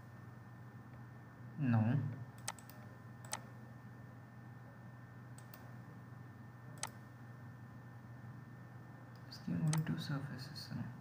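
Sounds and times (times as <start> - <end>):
low electrical hum: 0.0 - 11.0
computer mouse clicking: 2.4 - 3.5, 5.4 - 5.7, 6.8 - 7.0, 9.1 - 9.9.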